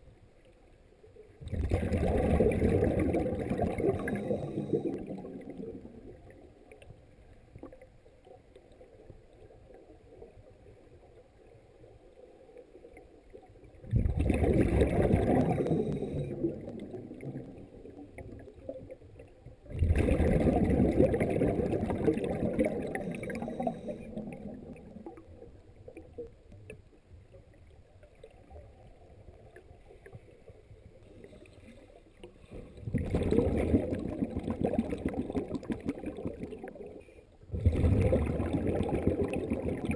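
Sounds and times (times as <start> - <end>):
underwater breath bubbling: 1.4 - 6.1, 13.9 - 17.8, 19.7 - 25.2, 32.4 - 39.9.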